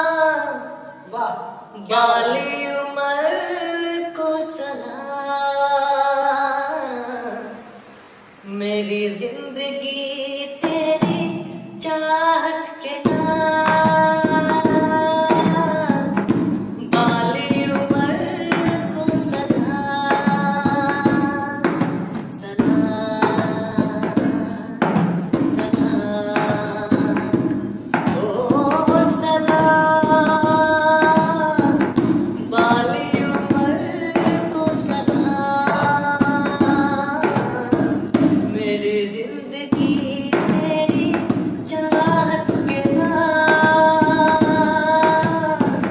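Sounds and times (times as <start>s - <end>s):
man singing long held notes: 8.4s - 45.9s
steady percussion: 10.6s - 12.2s, 13.0s - 45.9s.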